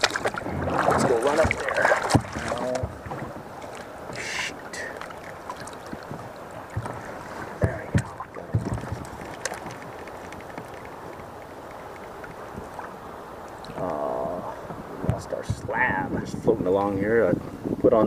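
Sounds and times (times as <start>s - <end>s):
water lapping against hull: 0.0s - 18.0s
knocks on kayak hull: 1.4s - 3.4s, 7.6s - 9.7s.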